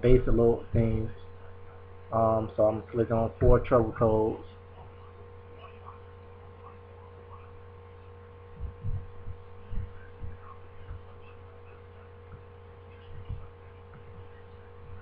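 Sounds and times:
electrical hum: 0.0 - 15.0
dull deep thumps: 8.5 - 11.2, 12.2 - 15.0.

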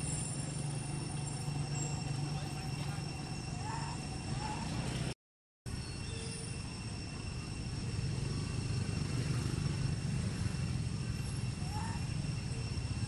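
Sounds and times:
rising chirps: 0.0 - 5.1
low outdoor rumble: 0.0 - 13.0.

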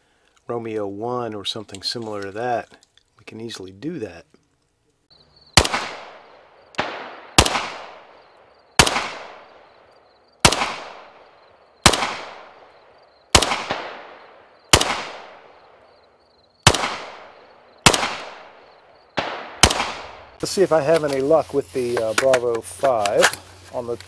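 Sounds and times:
rifle shots echoing: 5.5 - 16.0, 16.6 - 20.5.

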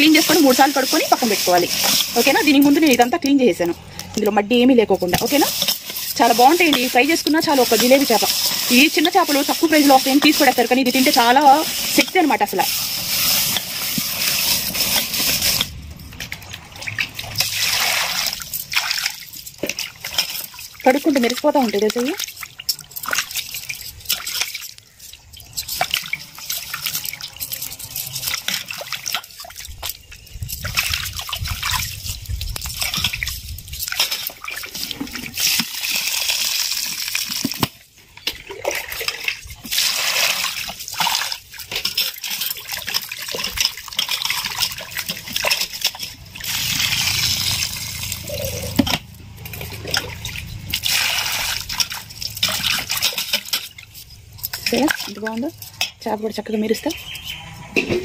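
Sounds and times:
water sloshing and splashing: 0.0 - 58.0.

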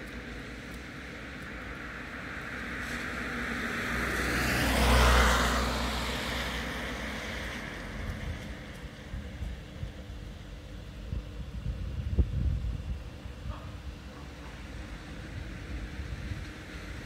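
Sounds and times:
car passing on wet road: 0.0 - 9.6, 14.6 - 17.0.

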